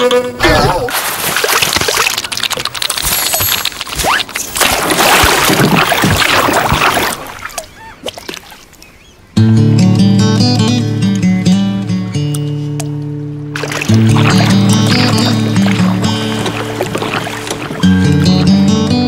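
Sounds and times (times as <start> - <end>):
water splashing and sloshing: 0.4 - 9.1, 13.5 - 19.0
acoustic guitar music: 9.4 - 19.0.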